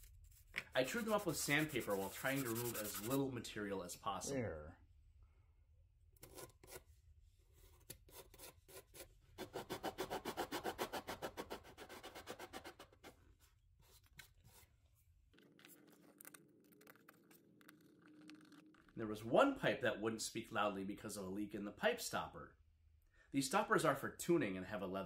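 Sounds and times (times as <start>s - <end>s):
wood rubbing on sandpaper: 0.7s - 3.2s.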